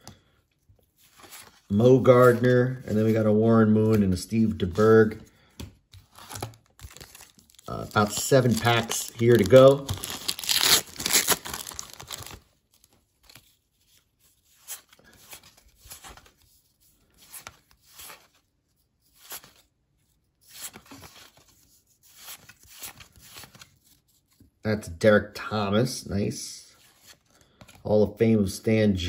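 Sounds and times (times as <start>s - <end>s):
cards rustling and sliding: 0.0s - 24.6s, 26.7s - 27.9s
card pack wrapper tearing: 6.1s - 12.5s.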